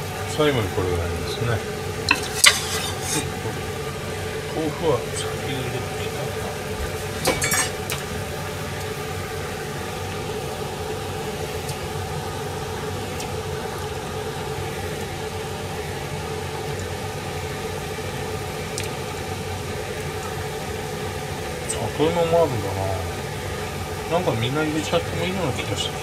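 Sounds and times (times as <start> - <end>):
fan motor hum: 0.0 - 26.0
ladle clicking against pan: 2.1 - 3.2.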